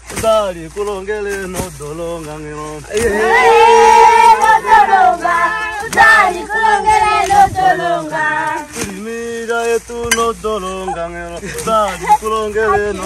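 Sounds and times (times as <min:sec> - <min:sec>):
group of voices singing: 0:02.6 - 0:13.0.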